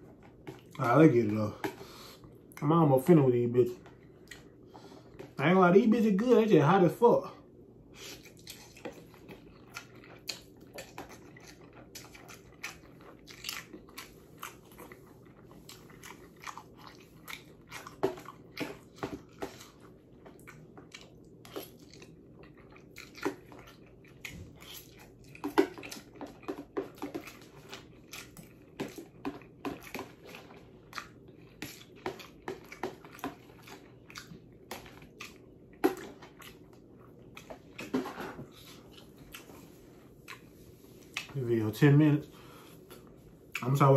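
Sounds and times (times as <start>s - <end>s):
chewing and lip smacks: 3.7s - 5.4s, 8.0s - 41.4s.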